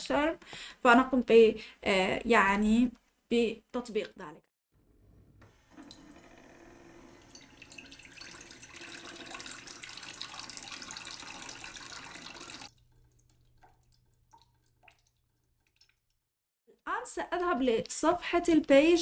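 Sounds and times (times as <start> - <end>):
water dripping: 5.7 - 6.2, 7.1 - 16.3
water pouring into glass: 7.1 - 16.0.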